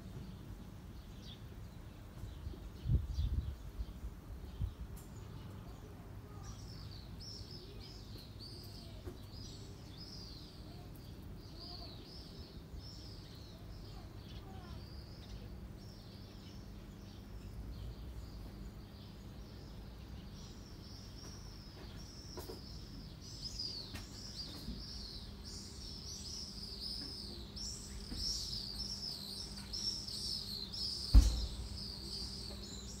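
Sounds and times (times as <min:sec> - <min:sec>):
small birds chirping: 0:00.0 - 0:33.0
thump: 0:31.1 - 0:31.8.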